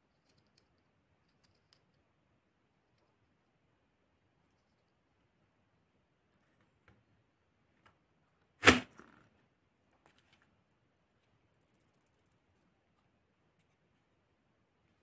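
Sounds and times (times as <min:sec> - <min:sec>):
sharp plastic snap: 0:08.6 - 0:09.0.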